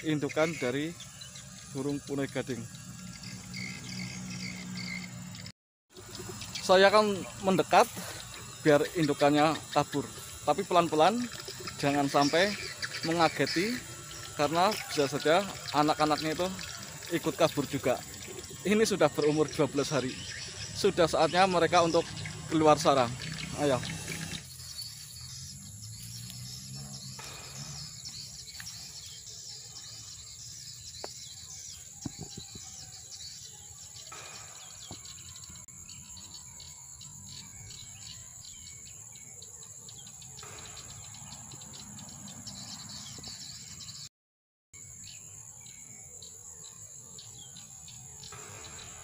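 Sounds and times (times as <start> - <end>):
birds chirping: 0.0 - 44.1, 45.0 - 49.0
high insect drone: 0.0 - 44.1, 44.8 - 49.0.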